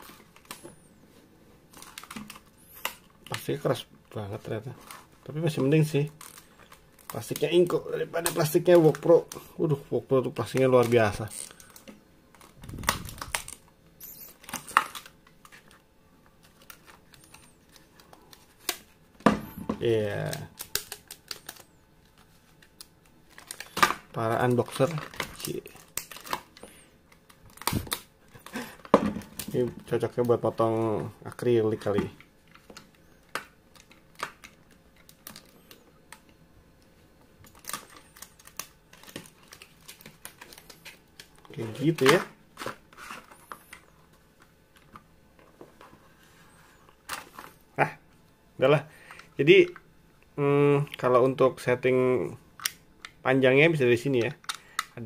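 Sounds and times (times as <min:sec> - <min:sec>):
plastic handling: 0:01.6 - 0:36.4, 0:37.4 - 0:47.6.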